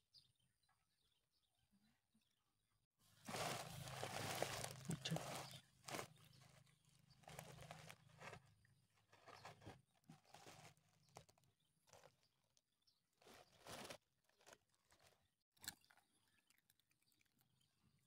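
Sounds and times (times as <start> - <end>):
rustling in grass: 3.2 - 8.4
cats chewing food: 3.3 - 12.1.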